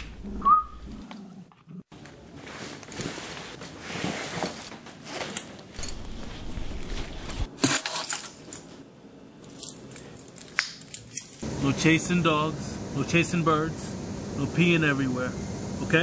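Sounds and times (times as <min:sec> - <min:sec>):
clothing rustling: 0:01.9 - 0:08.8
metal jingles and clicks: 0:05.8 - 0:06.4, 0:09.4 - 0:11.4.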